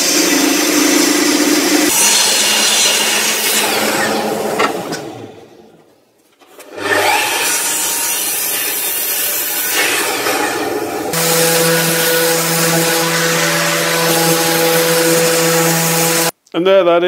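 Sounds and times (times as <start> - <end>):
orbital sander running: 0.0 - 4.6, 9.8 - 16.3
miter saw cutting wood: 0.0 - 5.5, 6.6 - 16.3.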